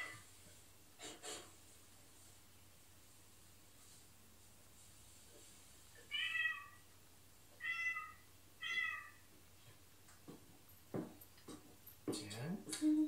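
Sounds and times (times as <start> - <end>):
cat meowing: 6.0 - 6.8, 7.6 - 9.2.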